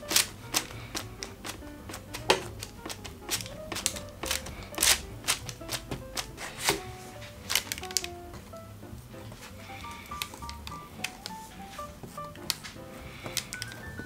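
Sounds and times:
spoon pressing into bread: 0:00.0 - 0:06.8
light plucked background music: 0:00.0 - 0:14.0.

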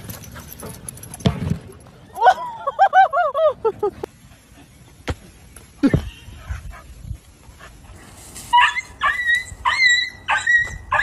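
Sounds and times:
dog whining yips: 0:08.5 - 0:11.0.

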